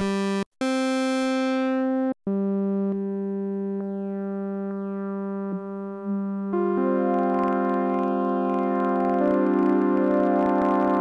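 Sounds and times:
synthesizer held note: 0:03.8 - 0:11.0.

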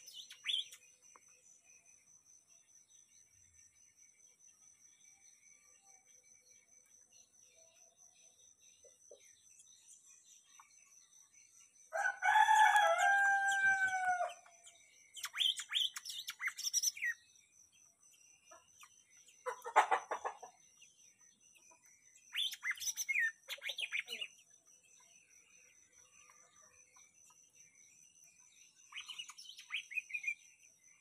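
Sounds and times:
songbird chirps and whistles: 0:00.0 - 0:02.2, 0:04.5 - 0:31.0
rooster crowing: 0:11.9 - 0:14.4.

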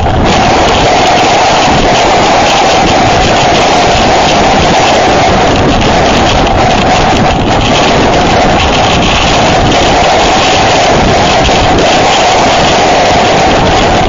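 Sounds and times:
high moan of wind: 0:00.0 - 0:14.0
strong wind blasting microphone: 0:00.0 - 0:14.0
wind-driven rain: 0:00.0 - 0:14.0.

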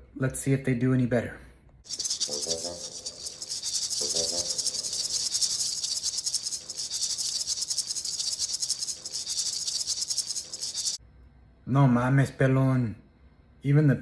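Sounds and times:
music with fast shaker rhythm: 0:01.9 - 0:11.0.

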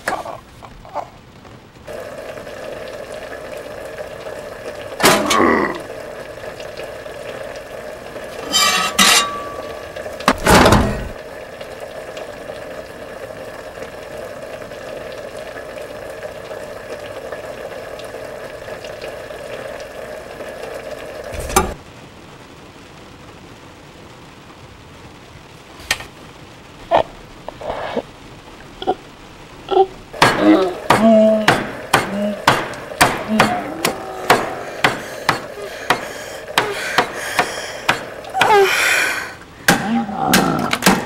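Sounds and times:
steady kitchen hiss: 0:00.0 - 0:41.0
pots and dishes clattering: 0:08.4 - 0:11.2.

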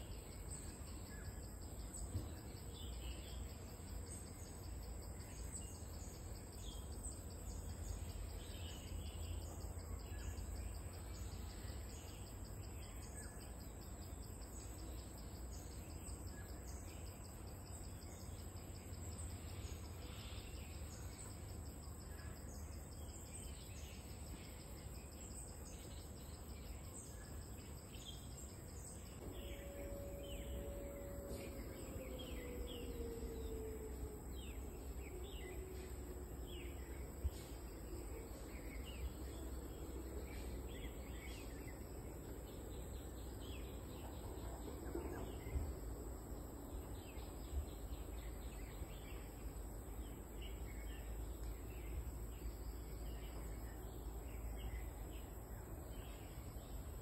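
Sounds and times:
insect chorus drone: 0:00.0 - 0:57.0
bird chirps: 0:22.1 - 0:41.9
faint tone sliding down: 0:29.2 - 0:36.2.

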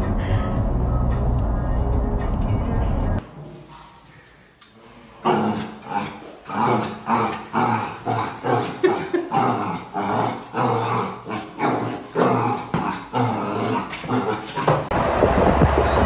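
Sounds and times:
dog growling and barking: 0:05.2 - 0:14.9.

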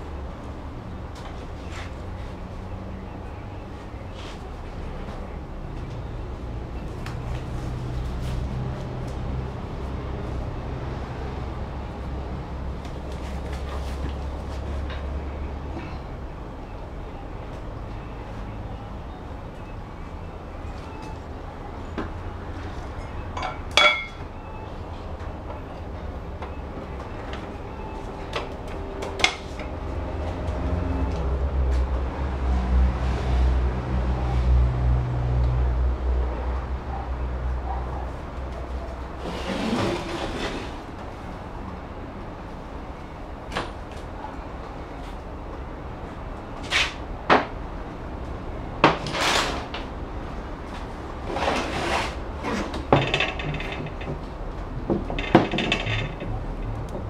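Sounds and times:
metal tools clinking: 0:23.0 - 0:24.2
hard metal clank: 0:23.4 - 0:24.2
metal scraping on workbench: 0:39.2 - 0:40.8, 0:51.2 - 0:54.0.

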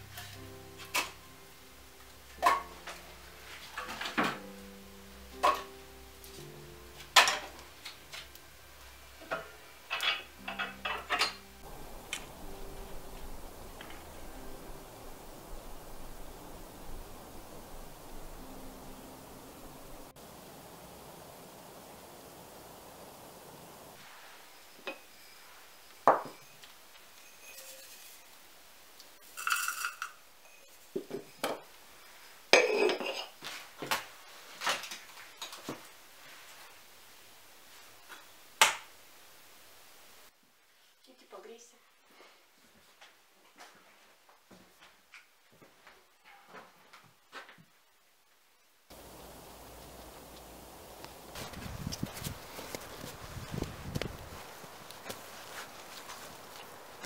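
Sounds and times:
steady outdoor hiss: 0:00.0 - 0:57.0
tableware clinking on a table: 0:07.2 - 0:07.6, 0:09.2 - 0:11.5, 0:27.2 - 0:28.2, 0:29.4 - 0:31.6, 0:32.5 - 0:33.4.

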